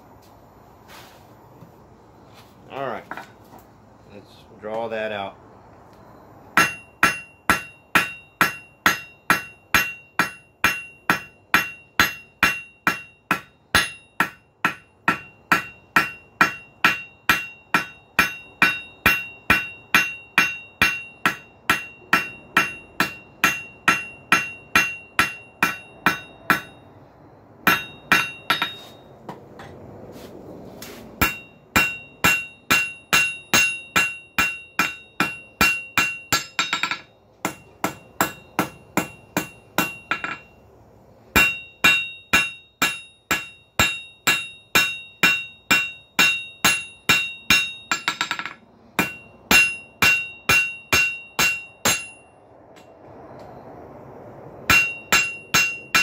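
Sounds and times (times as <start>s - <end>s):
anvil ringing: 6.6s - 26.9s, 27.6s - 29.1s, 31.2s - 40.6s, 41.4s - 52.4s, 54.7s - 56.0s
hammer striking iron on anvil: 6.6s - 26.9s, 27.6s - 29.0s, 31.2s - 40.6s, 41.3s - 52.9s, 54.7s - 56.0s.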